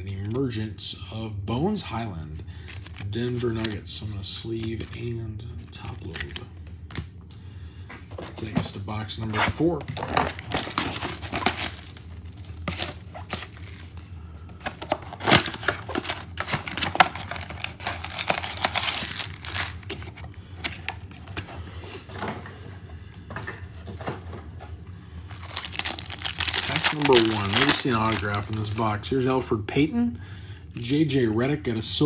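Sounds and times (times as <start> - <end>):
foil packs crinkling: 2.6 - 3.8, 10.0 - 21.5, 25.3 - 29.0
cardboard box ripping: 10.0 - 13.9, 15.1 - 19.8, 25.4 - 28.8.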